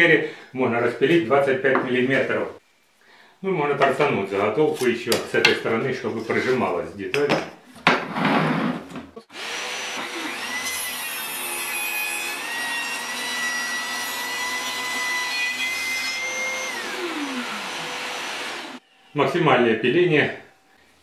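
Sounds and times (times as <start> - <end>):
saw cutting board: 8.1 - 18.8
table saw whining: 9.3 - 19.2
saw motor winding down: 16.3 - 18.8.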